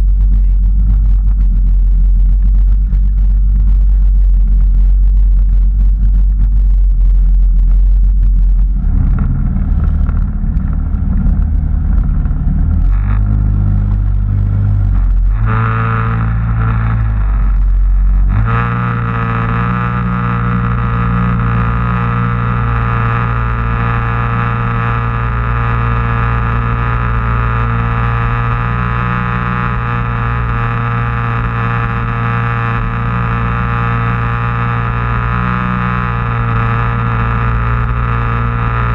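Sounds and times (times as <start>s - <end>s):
personal watercraft engine running: 8.0s - 38.9s.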